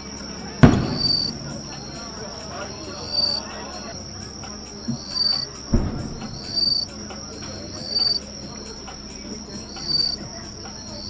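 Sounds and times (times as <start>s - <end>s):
night insects chirping: 0.0s - 11.0s
low firework boom: 0.6s - 1.6s, 5.7s - 6.6s.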